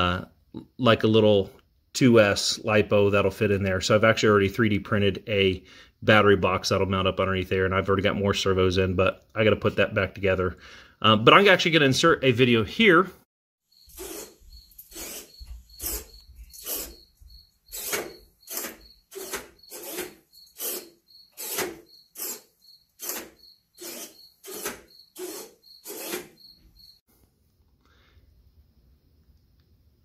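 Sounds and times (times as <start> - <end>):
small servos whirring: 17.7 - 26.4.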